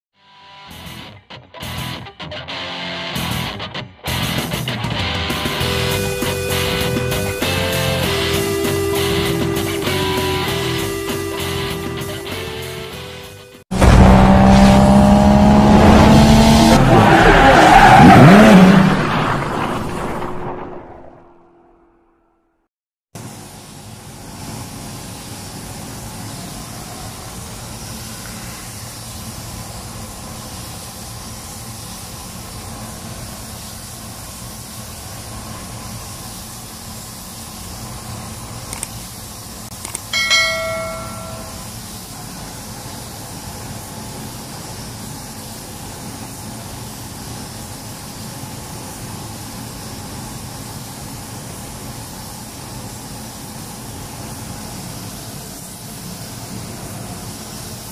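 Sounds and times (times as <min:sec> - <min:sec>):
paint spray gun hissing: 0:05.5 - 0:13.4, 0:23.2 - 0:57.9
bell-like ding: 0:40.1 - 0:41.7.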